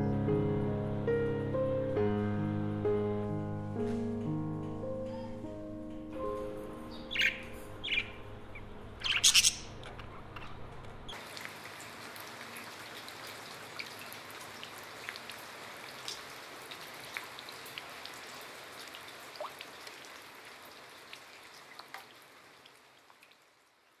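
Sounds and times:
rain falling on leaves: 11.1s - 24.0s.

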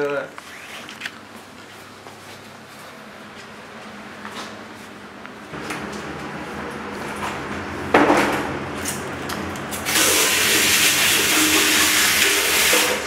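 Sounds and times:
water running from sink tap: 9.8s - 13.0s.

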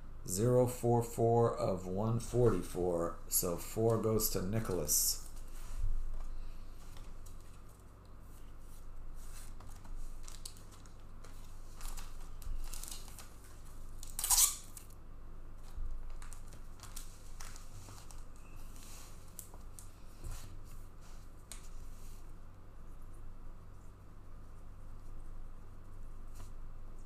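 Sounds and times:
card packaging rustling and tearing: 9.4s - 14.9s, 16.1s - 18.3s.

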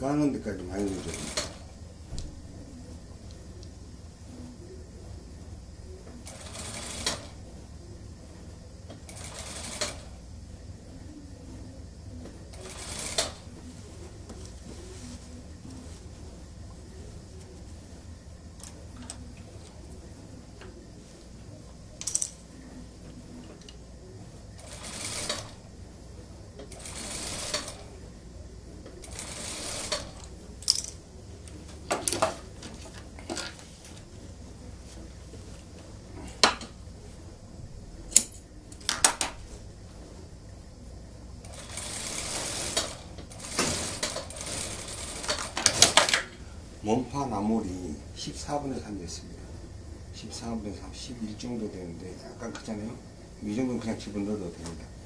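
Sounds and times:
sewing machine stitching: 0.8s - 1.7s, 6.2s - 7.4s, 9.1s - 10.1s, 12.5s - 13.4s, 24.6s - 25.6s, 26.7s - 27.9s, 29.0s - 30.3s, 41.5s - 46.2s.

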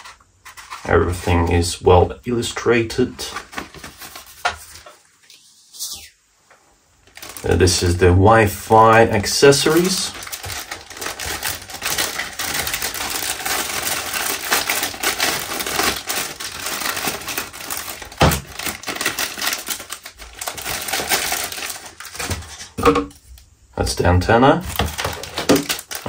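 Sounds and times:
plastic bags crinkling: 3.0s - 5.0s, 7.0s - 23.0s, 24.6s - 26.0s.

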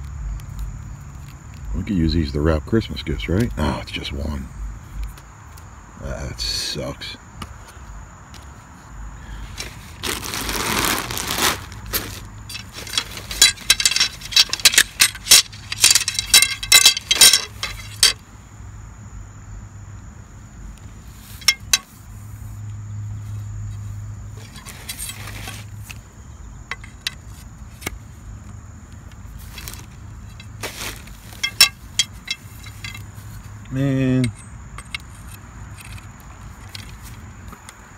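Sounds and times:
plastic bag rustle: 9.5s - 18.1s, 24.4s - 25.8s, 29.3s - 31.6s
metal poles clinking and knocking: 11.9s - 18.2s, 21.4s - 22.0s, 26.7s - 28.0s, 29.6s - 37.7s.

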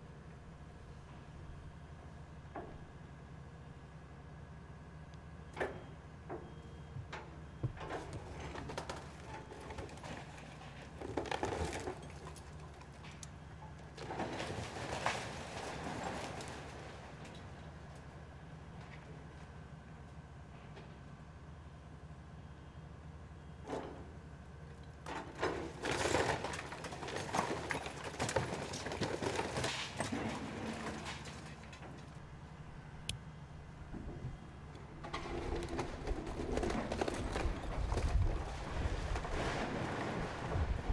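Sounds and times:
bricks cracking and falling: 8.0s - 13.2s, 25.1s - 32.1s, 35.0s - 40.9s
bricks knocking and clattering: 25.5s - 31.7s.

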